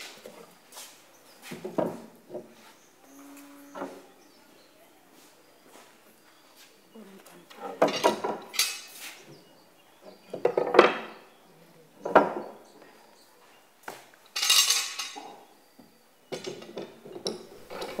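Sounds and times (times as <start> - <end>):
metal clamps clanking: 16.4 - 18.0.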